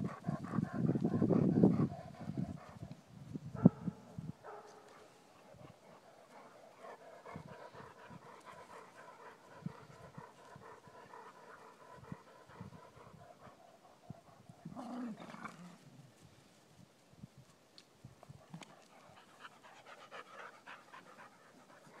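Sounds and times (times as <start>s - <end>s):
dogs panting: 0.0s - 3.0s, 4.4s - 14.8s, 18.4s - 22.0s.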